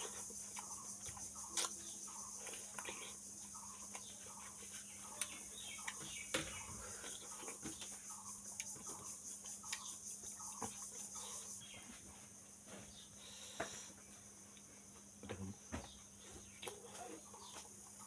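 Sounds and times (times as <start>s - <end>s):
wet chewing of watermelon: 0.0s - 11.4s, 16.4s - 18.0s
crickets chirping: 0.0s - 18.0s.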